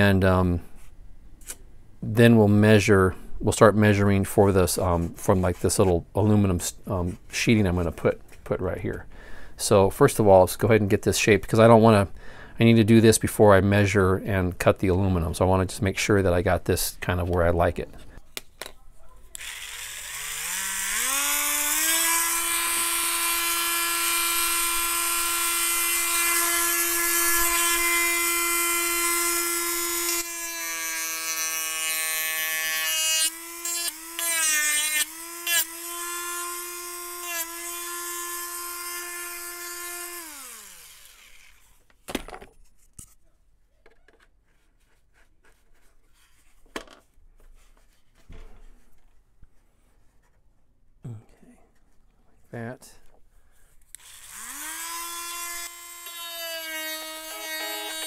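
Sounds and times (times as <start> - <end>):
knocks and handling sounds: 17.0 - 19.3, 41.8 - 50.7
rotary tool whining: 19.3 - 41.8, 53.9 - 58.0.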